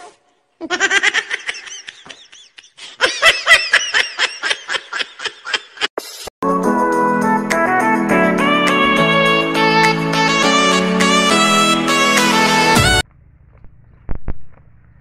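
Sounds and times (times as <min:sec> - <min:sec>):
man laughing hard: 0:00.6 - 0:05.9.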